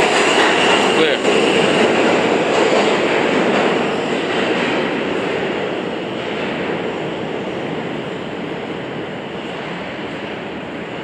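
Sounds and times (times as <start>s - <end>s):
subway train wheels on rail: 0.0s - 11.0s.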